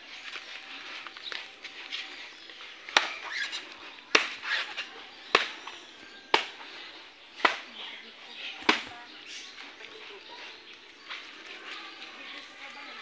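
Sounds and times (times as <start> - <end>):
blade chopping coconuts: 2.9 - 6.6, 7.4 - 7.8, 8.6 - 8.9.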